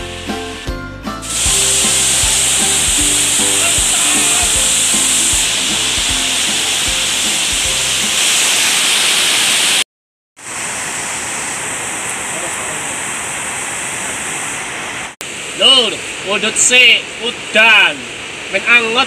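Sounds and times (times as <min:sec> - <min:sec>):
music playing: 0:00.0 - 0:08.3
waterfall rushing: 0:01.2 - 0:09.8, 0:10.4 - 0:19.0.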